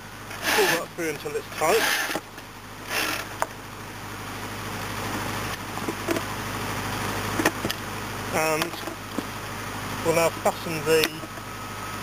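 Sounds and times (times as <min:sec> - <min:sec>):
wire rope rasping through winch: 0:00.3 - 0:02.2, 0:02.8 - 0:03.4.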